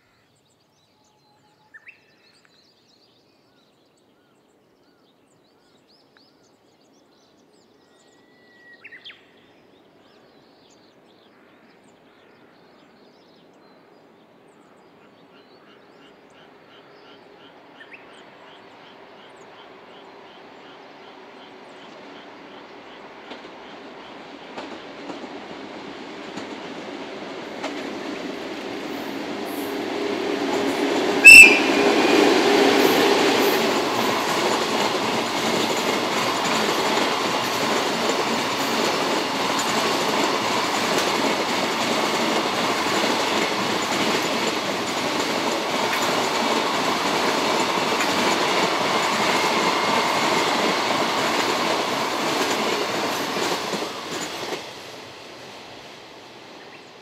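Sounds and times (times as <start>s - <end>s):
freight train wheels rumbling: 16.3s - 57.0s.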